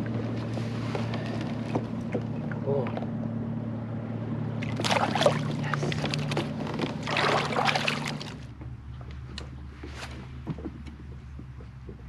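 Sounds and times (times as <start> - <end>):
water splashing and trickling: 4.5 - 8.6.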